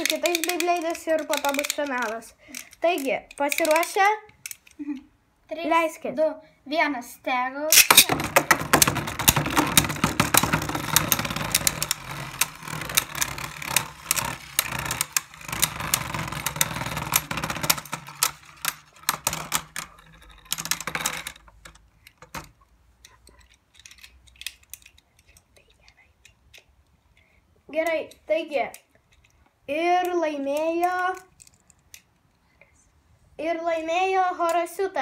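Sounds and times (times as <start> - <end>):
spinning tops whirring: 7.8 - 21.4.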